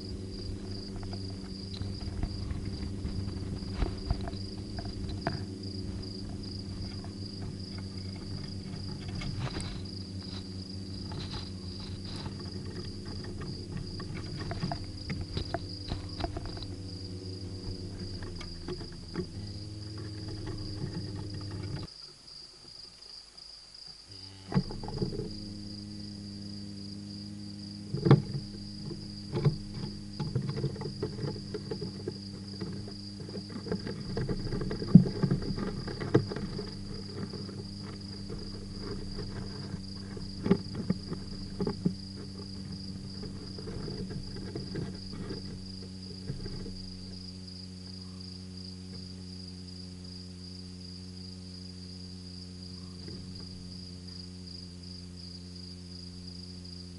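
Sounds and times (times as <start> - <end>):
crickets chirring: 0.0 - 56.9
low steady hum: 0.0 - 56.9
animal scratching on microphone: 0.3 - 16.7, 28.2 - 46.7.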